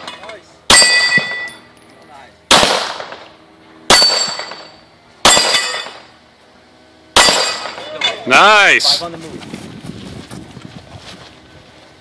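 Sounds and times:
steel plates ringing: 0.0 - 1.7, 3.9 - 6.1, 7.1 - 8.3
pistol shots: 2.5 - 3.3, 3.9 - 4.6, 5.2 - 6.0, 7.2 - 7.8.

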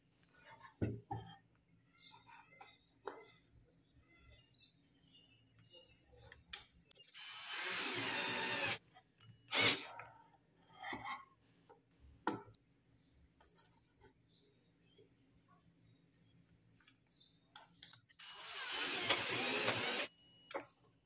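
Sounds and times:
electric drill driving a screw: 7.2 - 8.8, 9.5 - 9.8, 18.2 - 20.1.

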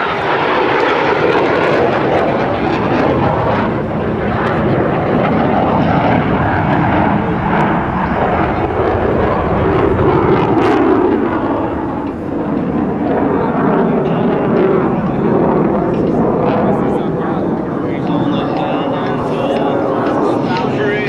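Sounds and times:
jet flying past: 0.0 - 21.0.

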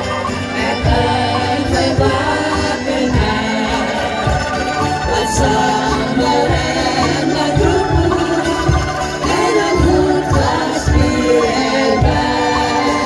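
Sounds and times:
woman singing: 0.0 - 13.0.

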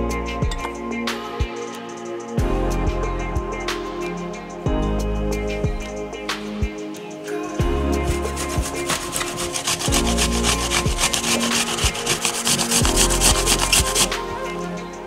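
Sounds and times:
apple rasping on grater: 8.3 - 14.2.

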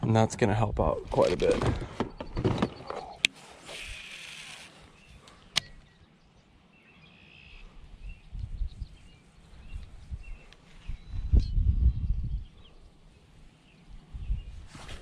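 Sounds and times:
faint bird chirps: 2.0 - 14.6
fishing rod cast hiss: 3.3 - 4.9
sharp click: 5.3 - 5.8
wind buffeting microphone: 7.7 - 12.9, 13.8 - 15.0.

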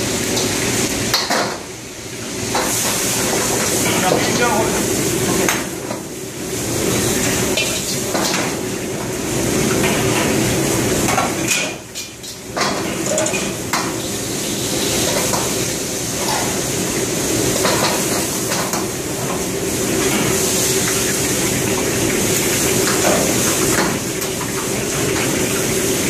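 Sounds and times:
food sizzling: 0.0 - 26.0
gas wok burners rushing: 0.0 - 26.0
metal ladles clanking on woks: 11.0 - 14.0.

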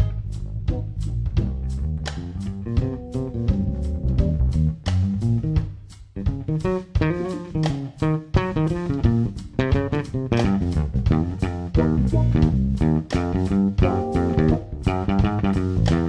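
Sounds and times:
drum kit: 0.0 - 16.0
electric bass: 0.0 - 16.0
guitar: 0.0 - 16.0
keyboard: 2.5 - 5.6, 13.8 - 15.8.

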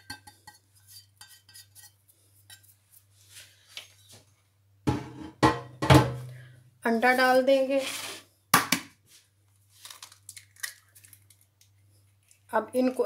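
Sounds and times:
dishes clattering: 4.9 - 6.2.

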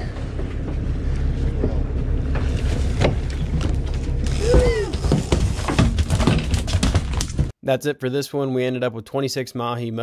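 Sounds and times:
boat engine rumbling: 0.0 - 7.5.

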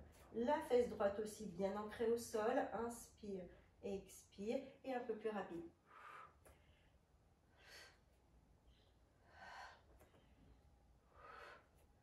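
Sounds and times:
woman breathing through the mouth: 5.8 - 12.0.

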